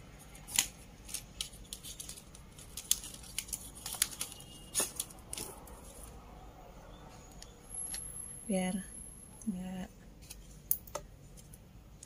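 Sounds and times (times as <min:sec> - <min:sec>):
packaging rustle: 0:00.4 - 0:06.2.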